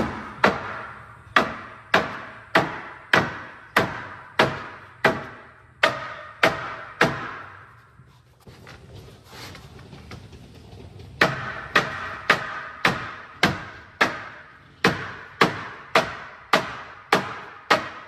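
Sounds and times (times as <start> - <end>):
hammer blows on wooden board: 0.0 - 7.8.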